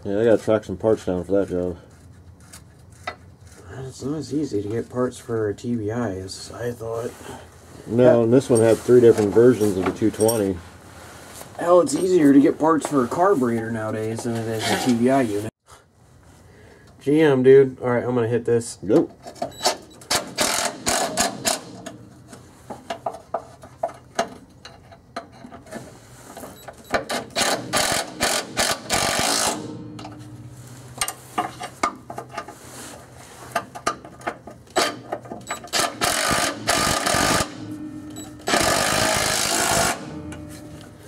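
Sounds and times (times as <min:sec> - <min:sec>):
impact driver driving bolts: 0:19.6 - 0:22.0, 0:26.9 - 0:30.2, 0:34.7 - 0:40.9
clicks and knocks: 0:29.5 - 0:32.6.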